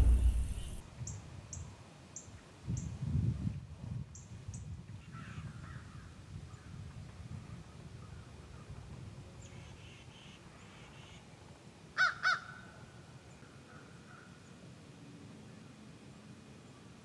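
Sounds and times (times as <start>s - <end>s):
faint low background noise: 7.6s - 17.0s
crow cawing: 12.0s - 12.5s.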